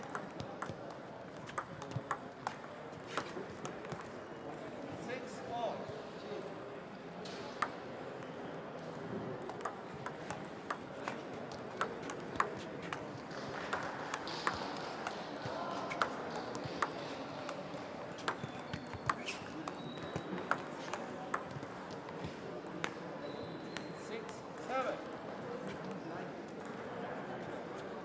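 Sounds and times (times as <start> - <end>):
table tennis balls clicking: 0.0 - 4.2, 7.5 - 23.0
murmur of voices: 0.0 - 28.0.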